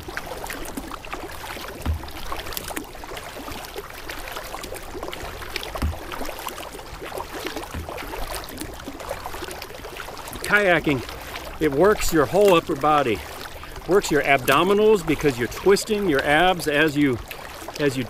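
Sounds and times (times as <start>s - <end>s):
paddle blades splashing water: 0.0s - 18.0s
soft low thump: 1.8s - 2.6s, 5.2s - 6.6s, 7.5s - 9.4s.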